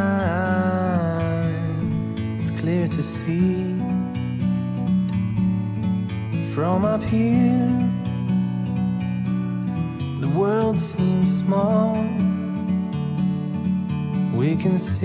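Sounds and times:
acoustic guitar song: 0.0s - 15.0s.

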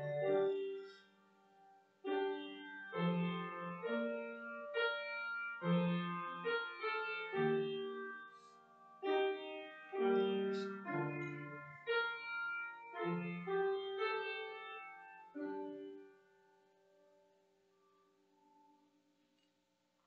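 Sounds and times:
piano chords: 0.0s - 1.0s, 2.0s - 16.2s.

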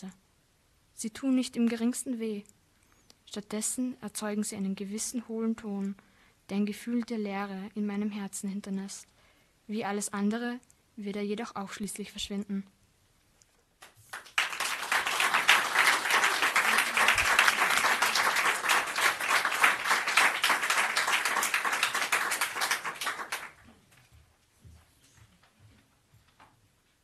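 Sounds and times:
audience applauding: 13.8s - 23.6s.

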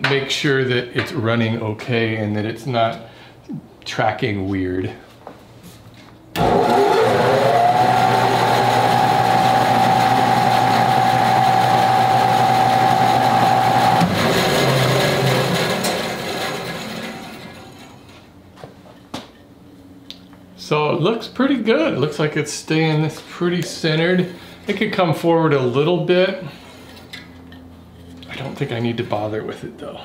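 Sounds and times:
bandsaw motor whining: 6.4s - 18.0s
bandsaw coasting down: 6.4s - 18.1s.

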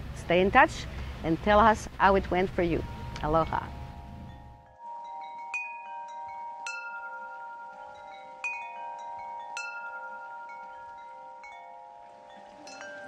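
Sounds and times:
metal chimes ringing: 2.6s - 13.0s.

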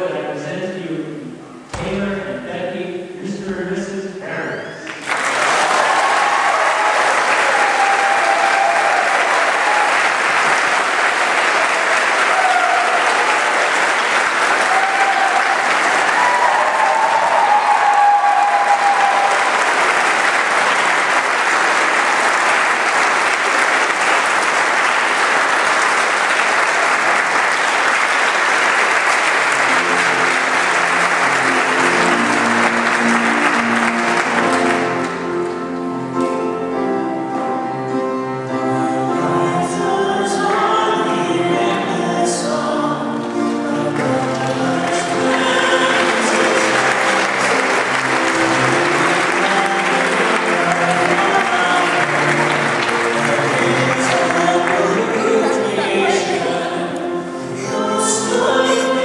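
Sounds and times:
recessional music: 1.6s - 59.0s
voices cheering: 4.8s - 23.3s
congregation applauding: 4.8s - 36.7s, 43.2s - 59.0s.

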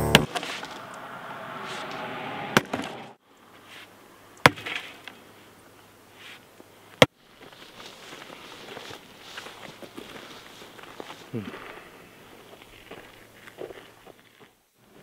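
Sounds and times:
faint background hiss: 3.2s - 15.0s.

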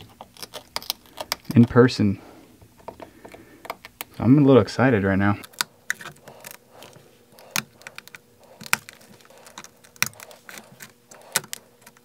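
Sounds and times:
glass cracking and crunching: 0.0s - 1.6s, 5.4s - 12.0s.

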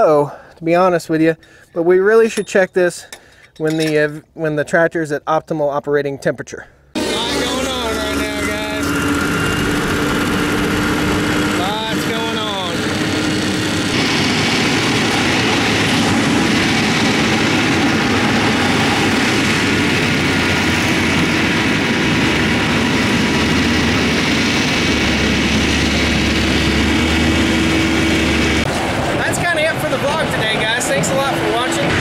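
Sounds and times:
deep rumble: 7.0s - 32.0s
diesel truck engine running: 7.0s - 32.0s.

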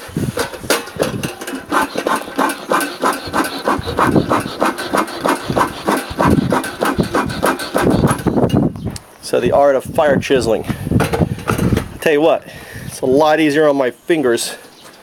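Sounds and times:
bellows smoker puffing: 1.0s - 8.5s.

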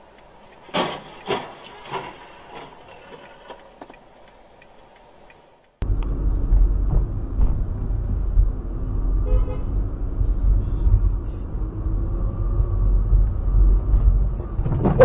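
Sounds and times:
engine and road rumble: 0.0s - 15.0s
car horn: 9.2s - 9.9s.

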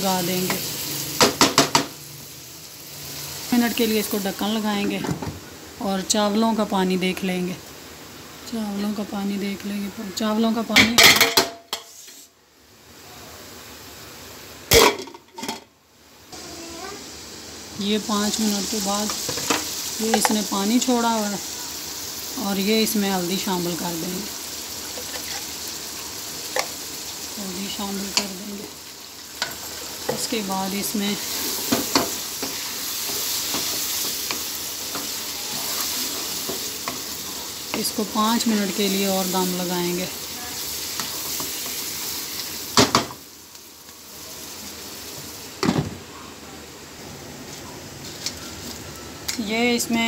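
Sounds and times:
food sizzling in oil: 0.0s - 50.0s
low steady hiss: 0.0s - 50.0s
wooden spoon scraping a pan: 24.8s - 25.6s, 31.2s - 37.9s.

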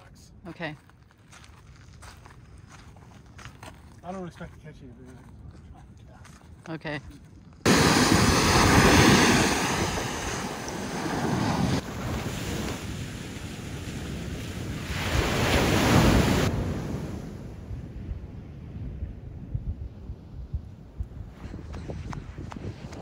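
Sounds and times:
wind buffeting microphone: 7.6s - 23.0s
ocean surf breaking: 7.7s - 17.8s.

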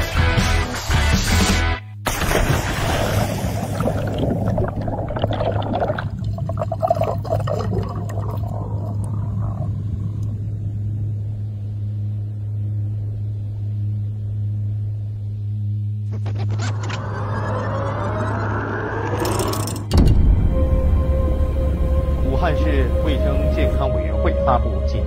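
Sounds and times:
steady low hum: 2.0s - 25.0s
underwater bubbling rush: 2.2s - 10.5s.

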